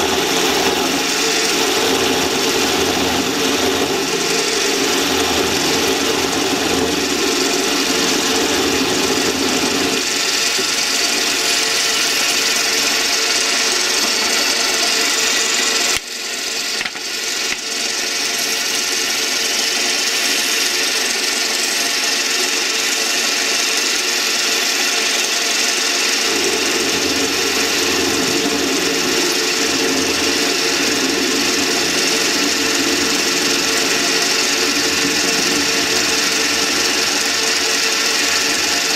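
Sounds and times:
parting tool cutting metal: 0.0 - 26.3
lathe motor and gears running: 0.0 - 38.9.

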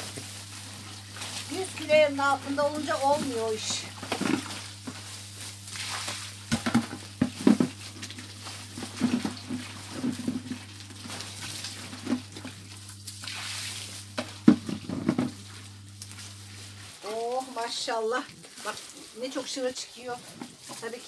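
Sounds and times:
grapes squelching underfoot: 0.0 - 21.0.

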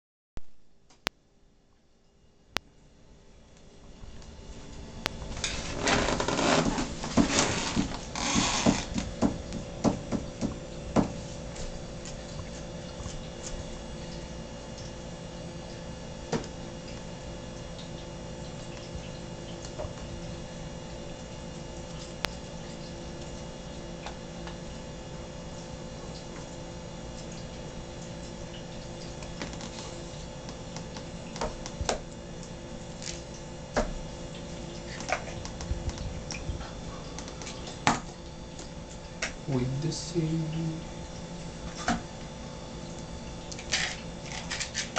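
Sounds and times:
steady low hum: 0.6 - 44.9
bag rustling and crinkling: 5.3 - 8.9.

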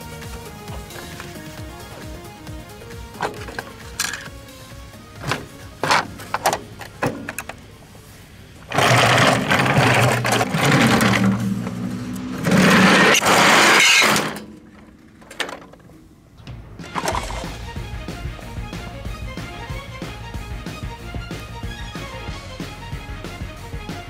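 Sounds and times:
toy truck rolling down metal slide: 8.7 - 15.8.

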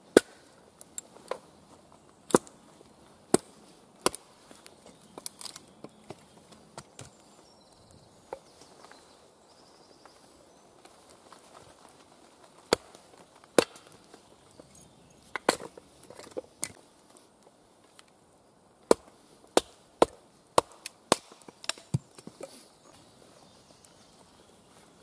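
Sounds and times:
axe splitting wood: 0.1 - 0.4, 3.3 - 4.3, 12.7 - 13.0, 13.6 - 14.0, 18.8 - 22.2.

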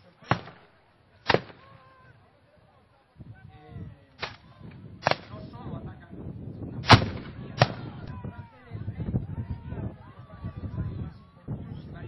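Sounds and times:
musket shots: 0.2 - 1.6, 5.0 - 5.4, 6.8 - 8.0.

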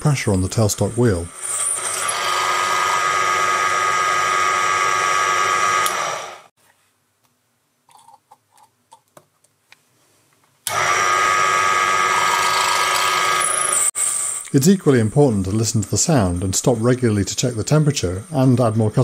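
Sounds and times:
lathe drilling whine: 0.8 - 6.5, 10.7 - 18.8.

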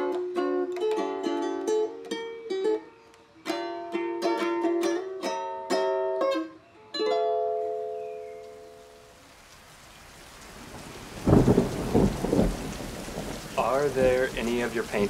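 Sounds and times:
ukulele playing: 0.0 - 8.7.

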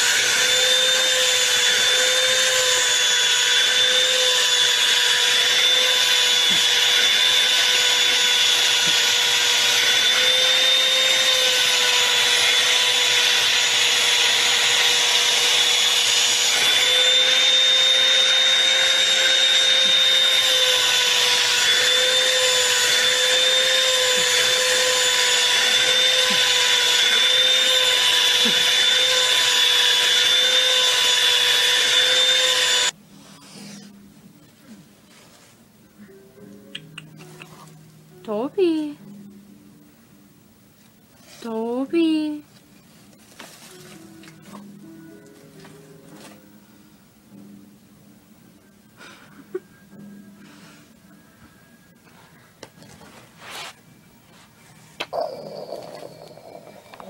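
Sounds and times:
vacuum cleaner running: 0.0 - 33.0.

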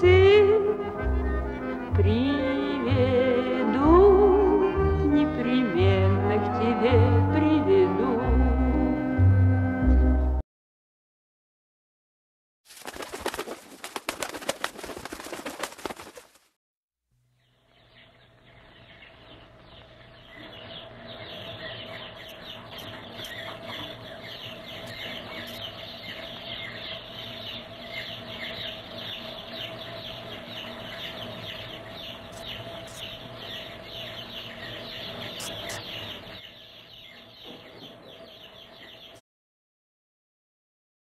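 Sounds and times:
pigeon wings fluttering: 12.7 - 16.6
bird calls: 17.4 - 39.2.

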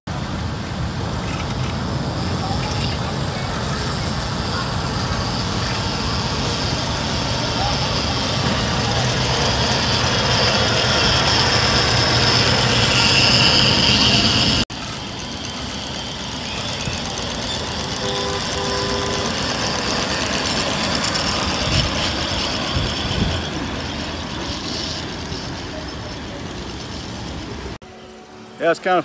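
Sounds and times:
miniature steam locomotive hissing: 0.1 - 29.0.

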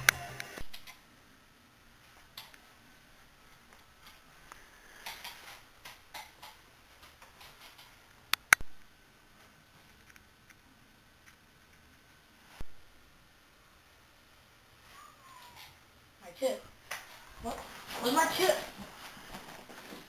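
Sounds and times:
sharp clicks: 5.0 - 6.6
faint rustling: 17.0 - 20.0.

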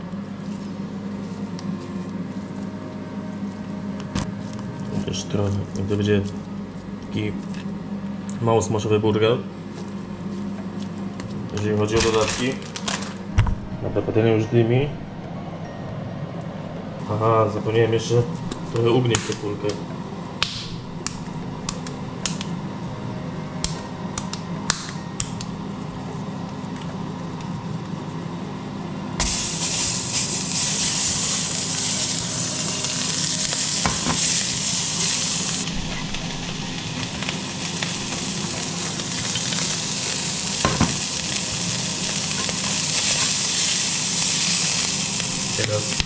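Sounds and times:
low hum: 0.0 - 46.0
meat sizzling in a frying pan: 29.2 - 46.0.

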